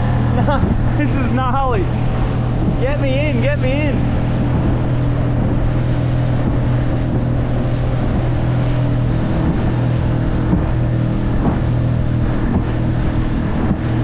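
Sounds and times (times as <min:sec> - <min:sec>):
outboard motor humming: 0:00.0 - 0:14.0
water rushing past hull: 0:00.0 - 0:14.0
wind on microphone: 0:00.0 - 0:14.0.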